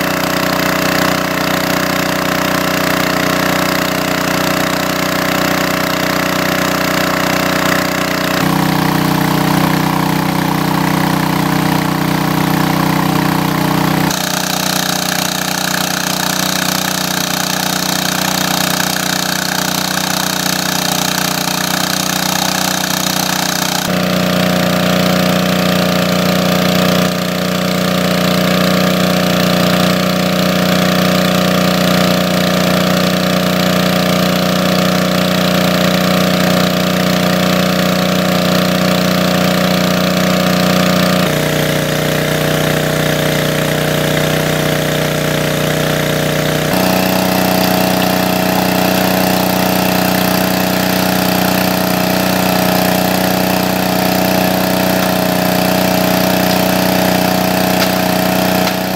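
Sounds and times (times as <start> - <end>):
water rushing from jet: 0.0 - 26.6
small engine water pump running: 0.0 - 58.9.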